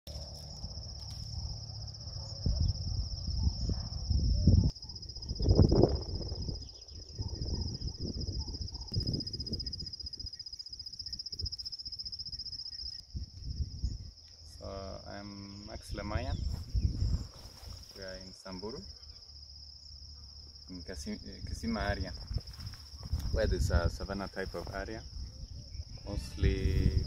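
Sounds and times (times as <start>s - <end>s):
crickets trilling: 0.1s - 27.0s
gusty wind buffeting: 2.4s - 10.3s, 16.2s - 17.8s, 21.4s - 27.0s.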